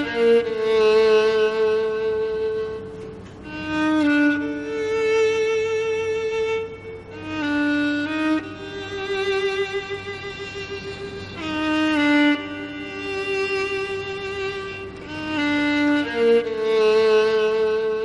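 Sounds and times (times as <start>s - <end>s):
slow violin melody: 0.0s - 18.0s.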